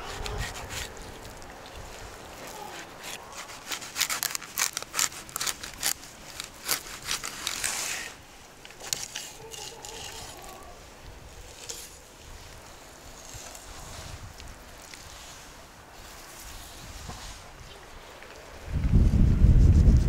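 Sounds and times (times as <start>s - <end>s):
knife crunching through fish bones: 3.0s - 7.8s.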